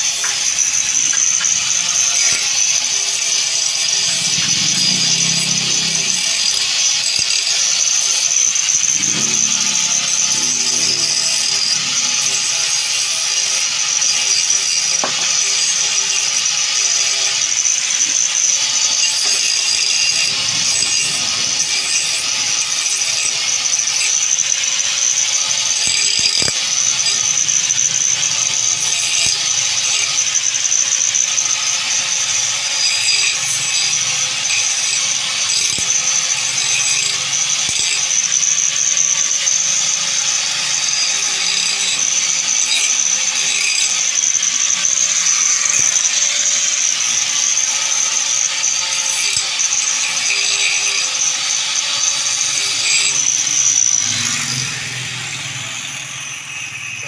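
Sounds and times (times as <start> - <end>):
angle grinder grinding metal: 0.0 - 57.0.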